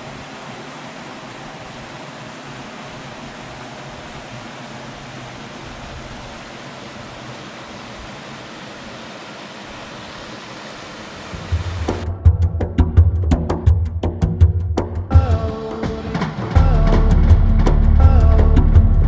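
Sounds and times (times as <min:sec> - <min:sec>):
stream rushing over rocks: 0:00.0 - 0:12.0
music with drum beat: 0:11.3 - 0:19.0.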